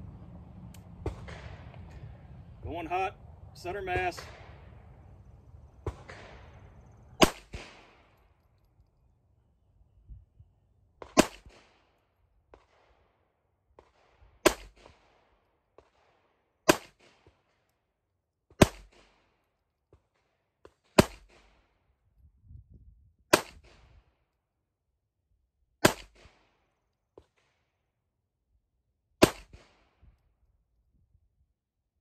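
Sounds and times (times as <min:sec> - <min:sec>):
pistol shots: 0:01.0 - 0:01.8, 0:05.8 - 0:08.4, 0:11.0 - 0:13.0, 0:13.8 - 0:17.4, 0:18.5 - 0:19.2, 0:20.7 - 0:21.6, 0:23.3 - 0:23.8, 0:25.8 - 0:26.6, 0:29.2 - 0:30.0.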